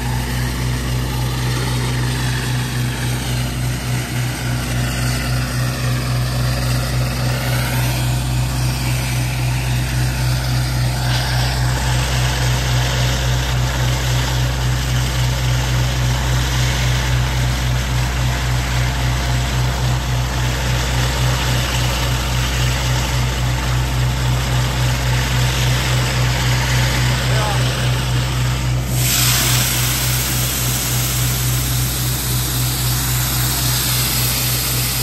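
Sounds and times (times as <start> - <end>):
pump and engine drone: 0.0 - 35.0
water jets hissing: 28.8 - 35.0.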